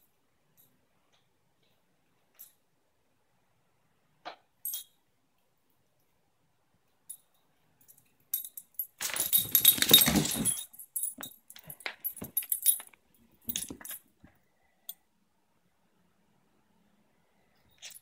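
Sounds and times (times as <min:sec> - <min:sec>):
light metallic jingling: 0:07.1 - 0:14.1.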